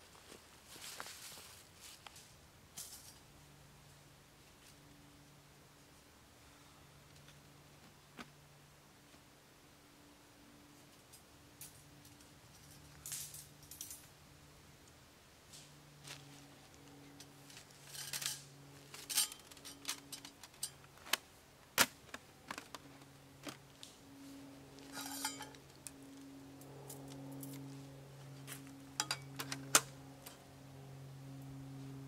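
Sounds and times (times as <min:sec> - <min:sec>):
metal clinks and clicks: 0:11.6 - 0:14.1, 0:17.2 - 0:20.9, 0:24.9 - 0:25.9, 0:29.0 - 0:29.5
sheet metal scraping rustles: 0:17.3 - 0:20.8, 0:24.8 - 0:25.8.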